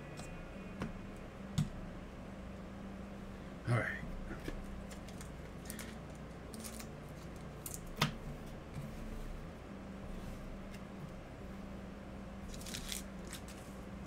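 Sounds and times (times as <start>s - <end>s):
trading cards rustling and clicking: 4.4s - 8.0s, 12.5s - 13.7s.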